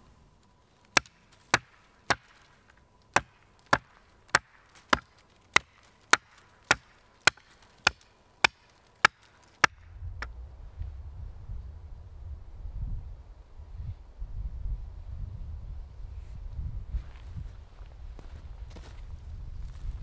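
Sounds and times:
blade chopping sapling: 0.9s - 10.3s.

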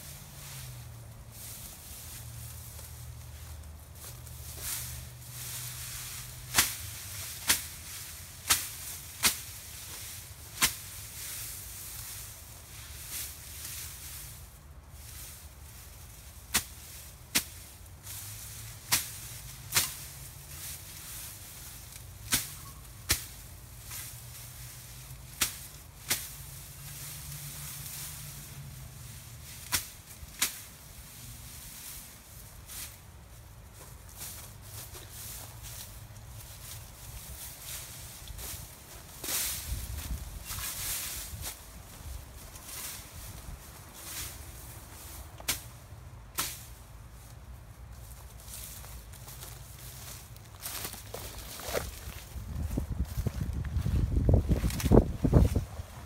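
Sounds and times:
machete chopping grass: 5.6s - 12.2s, 16.4s - 24.4s, 25.3s - 28.6s, 29.5s - 30.8s, 45.4s - 46.8s.

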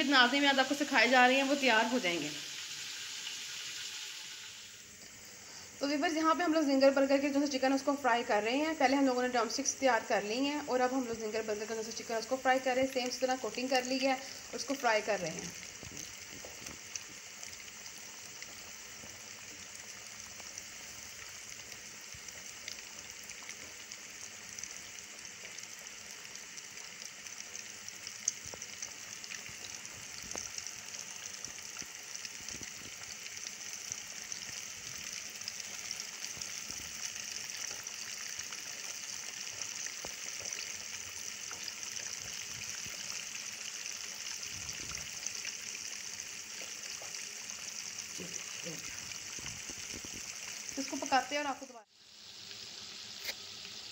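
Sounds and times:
oil sizzling while deep-frying: 0.0s - 53.9s
oil popping: 12.9s - 51.3s.

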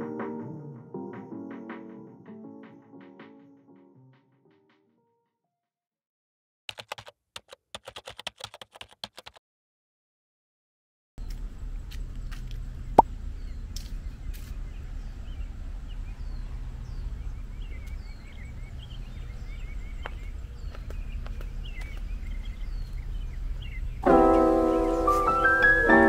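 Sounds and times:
birds chirping and calling: 13.4s - 25.3s.

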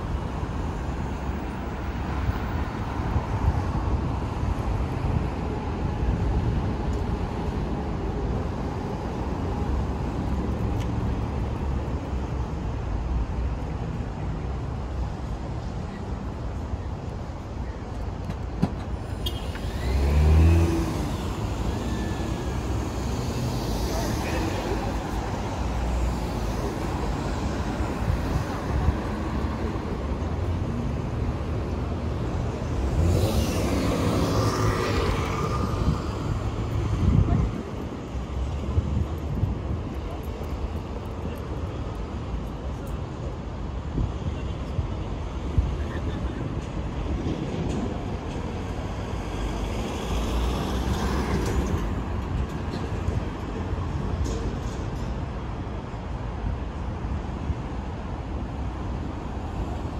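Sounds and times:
traffic rumble: 0.0s - 59.9s
vehicle passing by: 19.6s - 25.0s, 32.5s - 37.8s.

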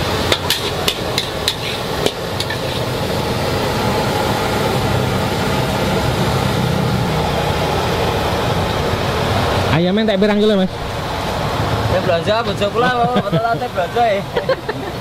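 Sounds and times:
metal spatula clanking on wok: 0.2s - 2.9s.

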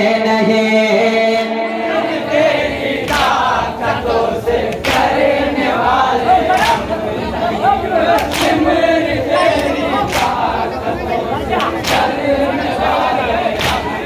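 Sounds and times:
men chanting together: 0.0s - 14.0s
hands slapping chests: 6.5s - 6.9s, 8.1s - 8.6s, 9.6s - 10.4s, 11.6s - 12.2s, 13.6s - 13.9s.

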